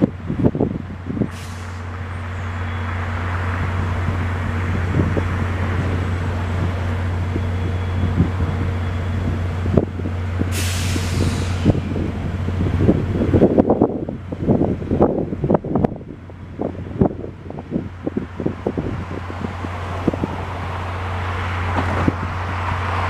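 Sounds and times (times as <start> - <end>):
diesel locomotive idling: 0.0 - 23.0
hiss: 1.3 - 2.0, 10.5 - 11.9.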